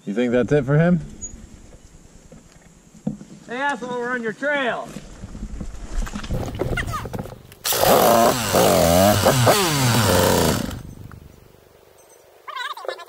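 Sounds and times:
dirt bike engine revving: 0:07.6 - 0:11.4.

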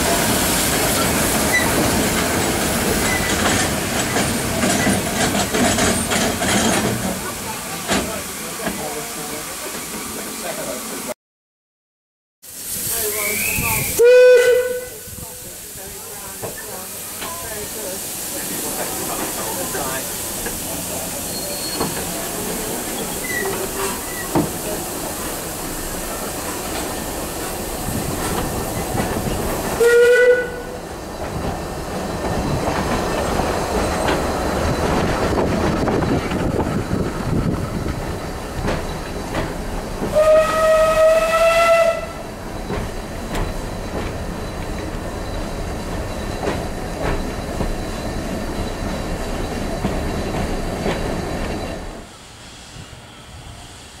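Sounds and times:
train carriages rumbling on rails: 0:00.0 - 0:10.7, 0:13.5 - 0:54.0
steam locomotive whistle: 0:13.0 - 0:15.1, 0:29.8 - 0:30.8, 0:40.1 - 0:42.3.

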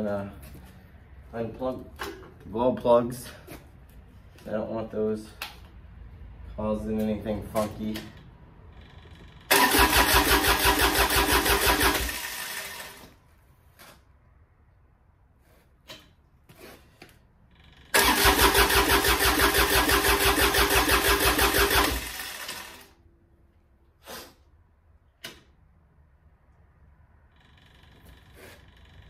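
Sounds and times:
diesel engine cranking: 0:08.6 - 0:13.1, 0:17.8 - 0:23.0.

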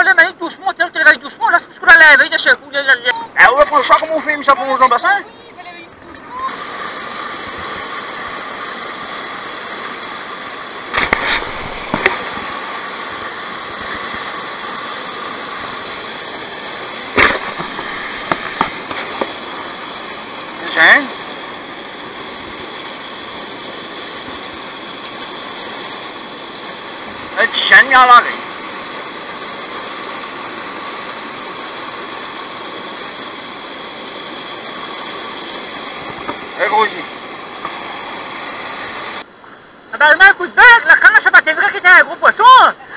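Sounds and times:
small waterfall rushing: 0:00.0 - 0:42.9
sharp knocks: 0:17.2 - 0:19.3.

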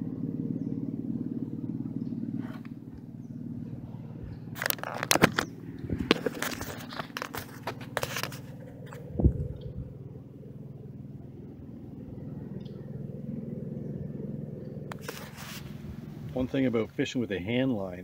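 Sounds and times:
low steady drone: 0:00.0 - 0:18.0
fishing line clicking and scraping: 0:04.3 - 0:09.1, 0:14.9 - 0:15.8.

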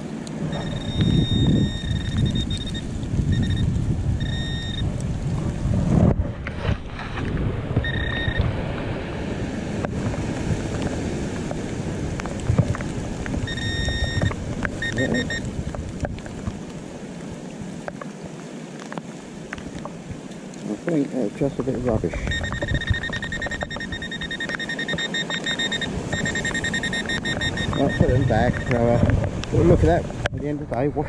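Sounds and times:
wind rumbling on microphone: 0:00.0 - 0:31.0
metal detector beeping: 0:00.5 - 0:04.9, 0:07.8 - 0:08.5, 0:13.5 - 0:15.5, 0:22.2 - 0:28.8.

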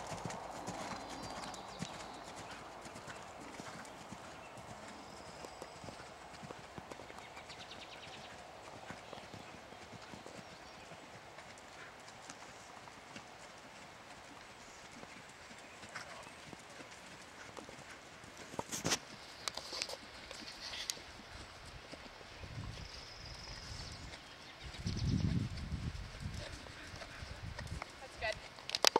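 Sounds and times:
horse hoofbeats on sand: 0:00.0 - 0:20.6.

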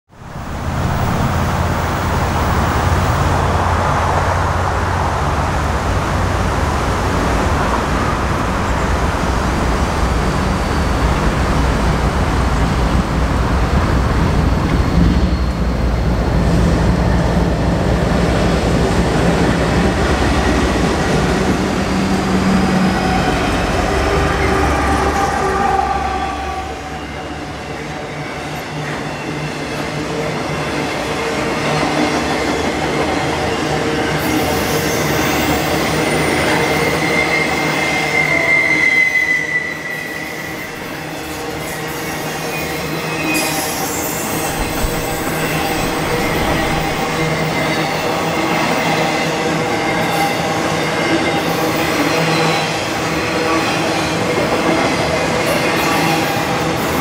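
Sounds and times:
diesel locomotive engine rumble: 0:42.9 - 0:48.8.

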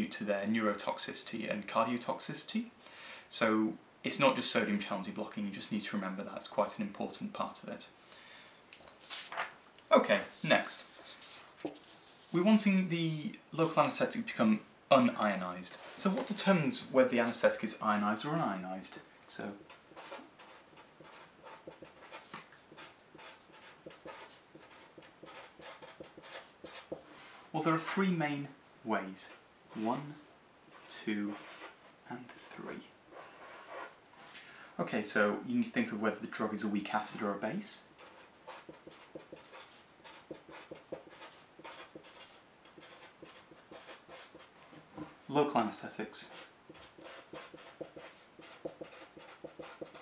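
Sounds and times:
marker writing on paper: 0:19.6 - 0:27.1, 0:30.7 - 0:31.8, 0:33.1 - 0:33.9, 0:38.0 - 0:45.1, 0:46.3 - 0:50.0.

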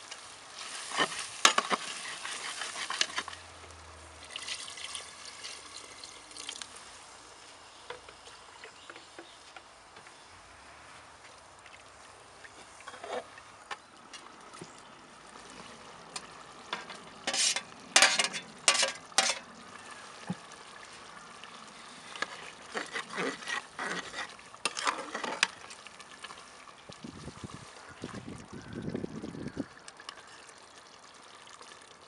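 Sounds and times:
metal spoon scraping pot: 0:12.9 - 0:13.3, 0:16.8 - 0:19.5, 0:22.1 - 0:25.6.

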